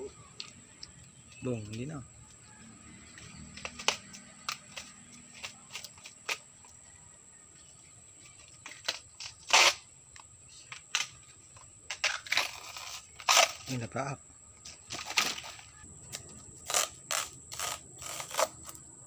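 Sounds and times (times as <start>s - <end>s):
banana trunk sheaths cracking: 16.7s - 18.8s.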